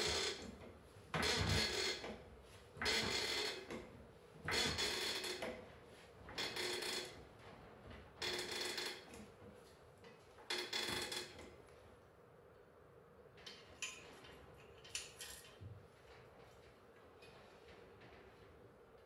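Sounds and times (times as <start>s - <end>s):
floor jack being pumped: 0.0s - 0.5s, 1.2s - 2.1s, 4.4s - 5.5s.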